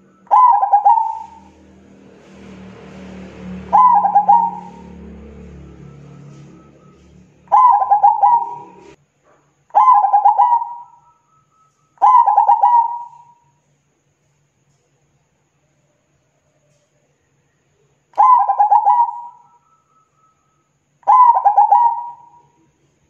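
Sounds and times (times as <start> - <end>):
dove cooing: 0.0 - 1.6, 3.6 - 9.0, 9.8 - 11.1, 12.0 - 13.4, 18.2 - 19.5, 21.0 - 22.5.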